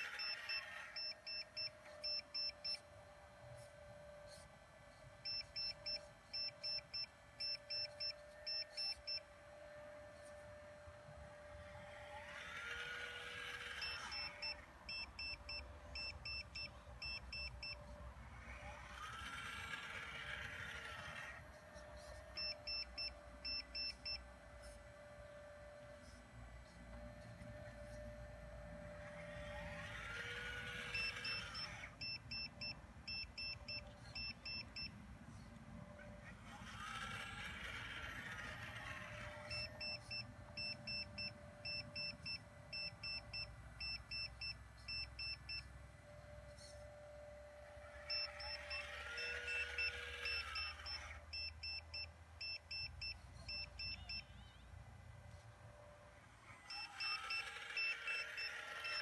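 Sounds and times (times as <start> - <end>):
electric pump motor whine: 0.0 - 52.9, 54.9 - 59.0
sharp electronic beeps: 0.2 - 2.8.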